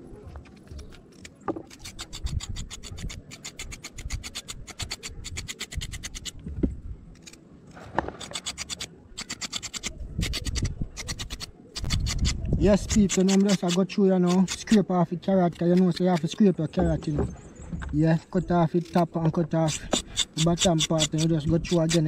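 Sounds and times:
knife scraping carrot skin: 0.6 - 6.4, 8.1 - 16.4, 18.8 - 22.0.

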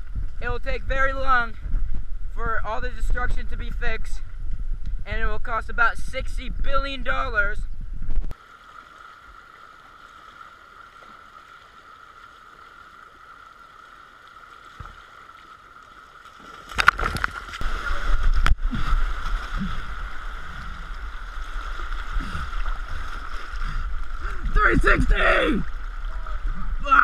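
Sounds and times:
stream rushing: 8.3 - 27.0.

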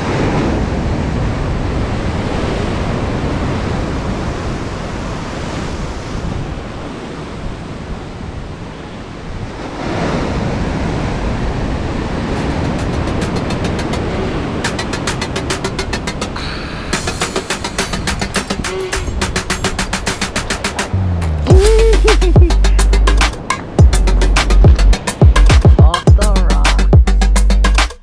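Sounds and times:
surf breaking on shore: 0.0 - 26.3
fast faint high ticking: 14.6 - 28.0.

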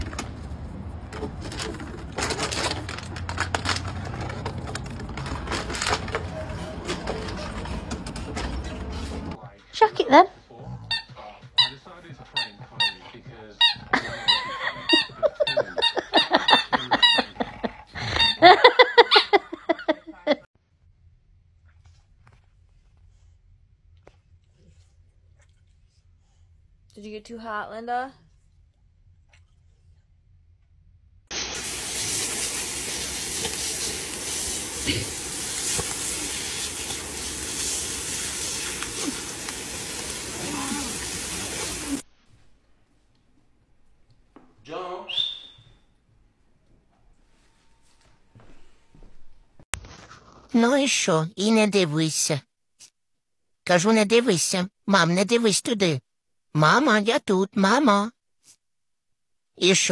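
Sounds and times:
squeaky toy squeaking: 10.9 - 17.3, 18.2 - 18.5
hose nozzle spraying water: 31.3 - 42.0.

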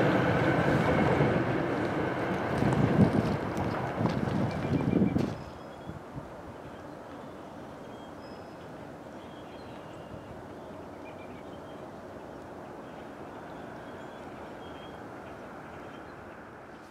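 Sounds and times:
outdoor background rumble: 0.0 - 6.9.

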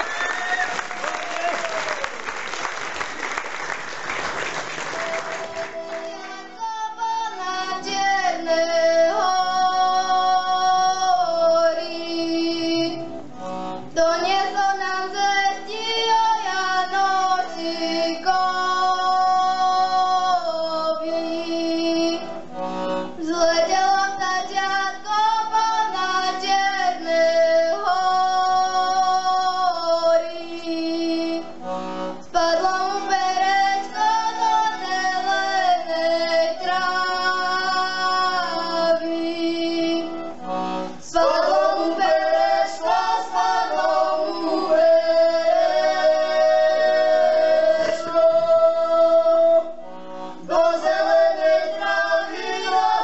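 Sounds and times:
audience applause: 0.0 - 6.3
button accordions playing folk tune: 2.7 - 53.0
women singing held notes: 4.9 - 53.0.

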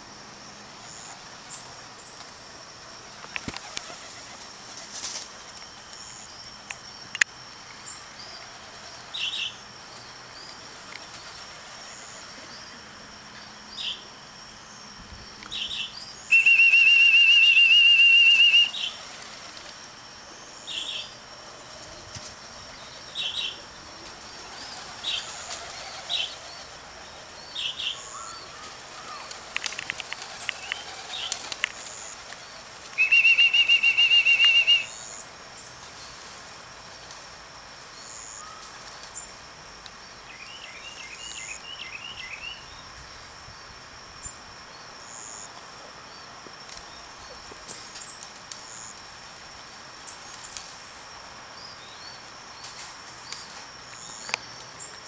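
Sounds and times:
pigeon wings flapping: 3.2 - 5.6, 16.6 - 19.8, 23.9 - 27.1, 28.0 - 34.8
trilling whistle blasts: 16.3 - 19.0, 33.0 - 35.2.

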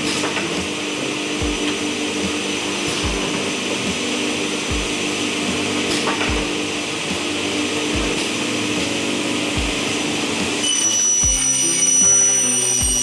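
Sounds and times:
high ringing layer: 0.0 - 13.0
slow beat music with chords: 0.0 - 13.0
whirring hiss: 0.0 - 13.0.

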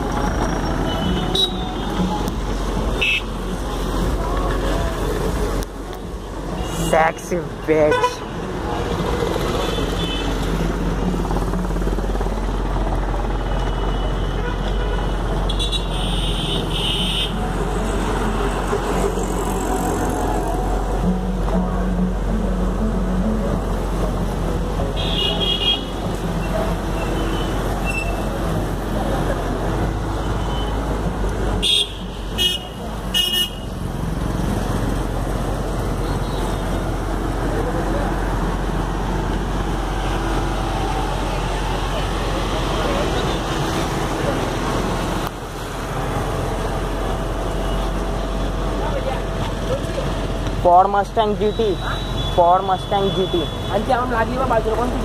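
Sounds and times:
street traffic rumble: 0.0 - 55.0
vehicle horn toots: 31.6 - 33.7.

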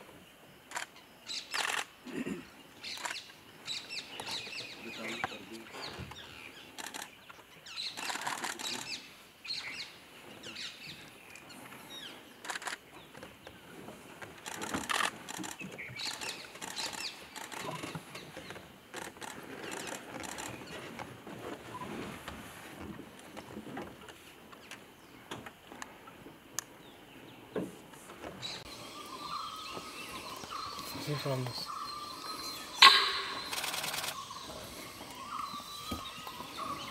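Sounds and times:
birds chirping: 0.6 - 20.9, 24.5 - 36.9
sharp clicks: 32.8 - 34.2.

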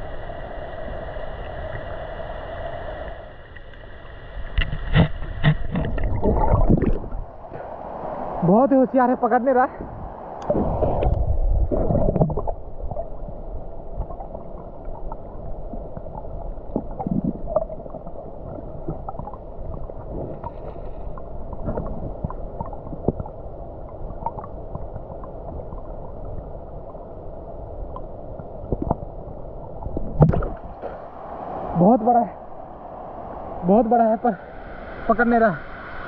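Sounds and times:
small underwater clicks and pops: 27.9 - 29.1.

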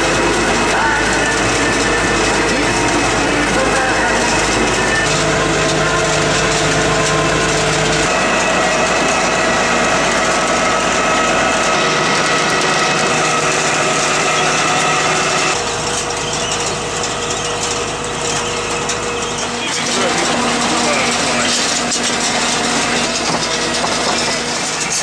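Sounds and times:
harvester webs and chains running: 0.0 - 25.0
steady mechanical tones: 0.0 - 25.0
tractor engine: 0.0 - 25.0.

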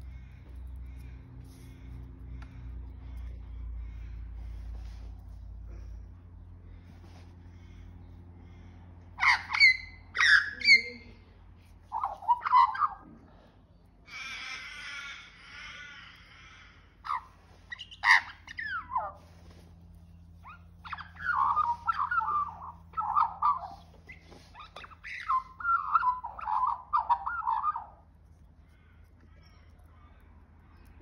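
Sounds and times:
magpie warbling song: 9.2 - 11.1, 11.9 - 13.0, 14.1 - 19.6, 20.4 - 28.0
magpie sliding calls: 11.9 - 13.0, 17.1 - 28.0.

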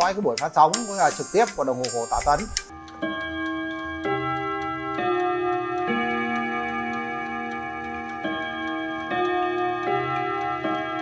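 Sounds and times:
clock ticking: 0.0 - 11.0.

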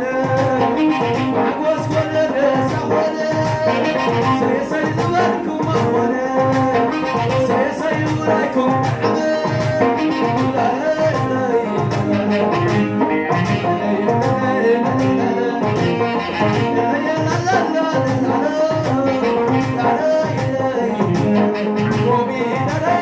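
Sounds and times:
keyboard: 0.0 - 23.0
man singing: 0.0 - 23.0
steady drum beat: 0.0 - 23.0.

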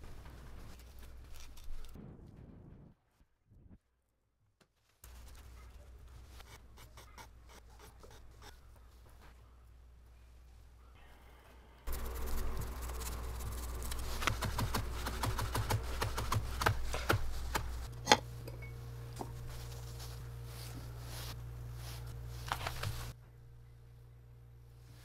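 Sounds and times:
steady low hum: 5.1 - 25.0.

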